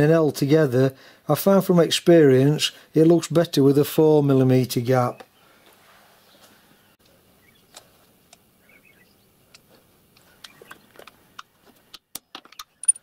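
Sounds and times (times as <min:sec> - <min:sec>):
metal tools clicking and clinking: 0:12.4 - 0:13.0.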